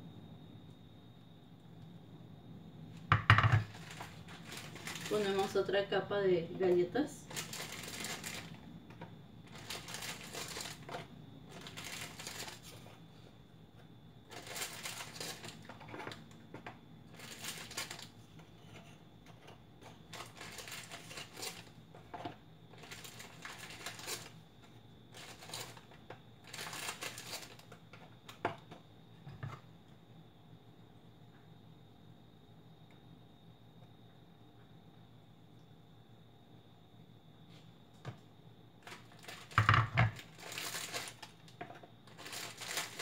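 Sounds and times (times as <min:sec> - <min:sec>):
plastic wrapper crinkling: 0:03.6 - 0:05.6, 0:07.2 - 0:08.6, 0:09.4 - 0:12.8, 0:14.3 - 0:16.2, 0:17.1 - 0:18.2, 0:20.1 - 0:21.8, 0:22.7 - 0:24.4, 0:25.1 - 0:27.8, 0:38.8 - 0:41.5, 0:42.1 - 0:43.0.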